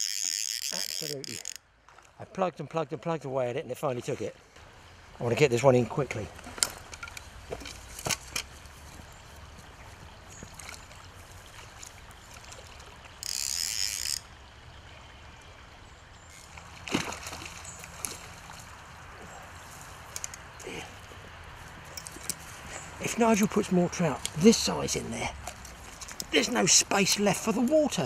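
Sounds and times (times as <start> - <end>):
fly reel ratchet buzzing: 0.0 - 1.6, 13.2 - 14.3.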